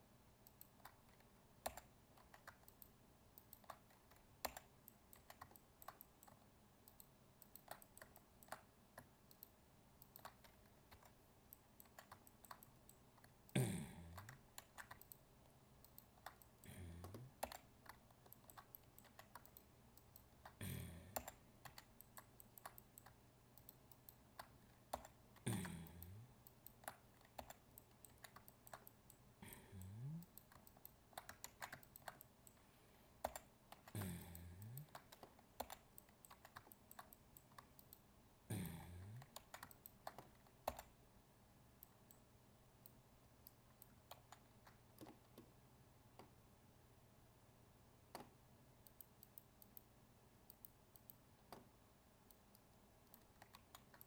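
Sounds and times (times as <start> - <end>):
mouse clicking: 0.4 - 32.6, 33.2 - 38.1, 39.2 - 41.0, 41.8 - 46.4, 48.1 - 54.0
keyboard keys clicking: 0.5 - 13.4, 14.2 - 15.2, 15.8 - 20.6, 21.2 - 29.2, 30.2 - 32.6, 33.2 - 38.0, 39.2 - 40.9.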